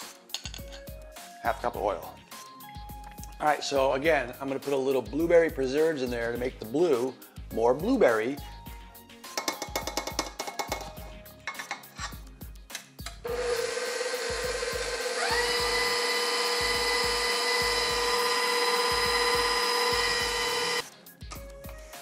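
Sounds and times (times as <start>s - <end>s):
background music with beat: 0.0s - 13.4s, 14.2s - 22.0s
stand mixer motor humming: 13.3s - 20.8s.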